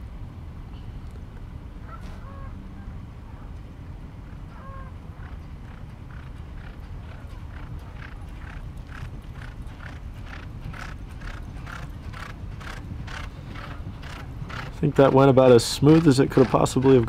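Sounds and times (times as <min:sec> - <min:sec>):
horses galloping on dirt: 0:04.3 - 0:17.0.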